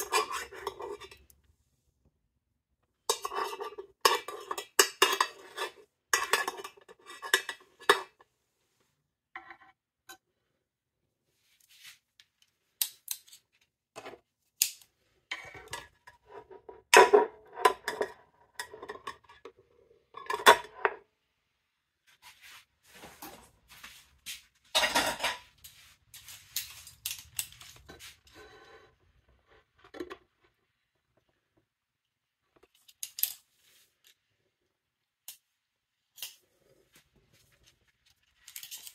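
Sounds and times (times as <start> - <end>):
metal utensils clinking and scraping: 0.0 - 1.3, 3.1 - 8.2, 14.6 - 21.0, 24.7 - 29.0, 38.3 - 38.9
utensils clattering: 3.1 - 8.1, 24.7 - 25.6.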